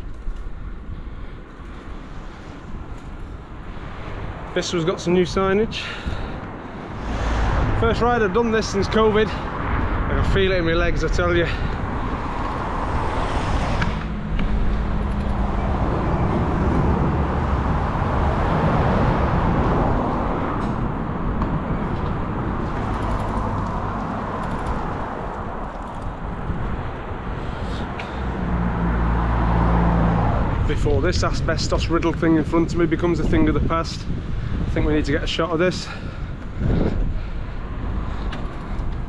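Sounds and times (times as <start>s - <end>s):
road traffic: 0.0s - 39.0s
vehicle engine running nearby: 4.5s - 33.6s
wind on microphone: 5.2s - 39.0s.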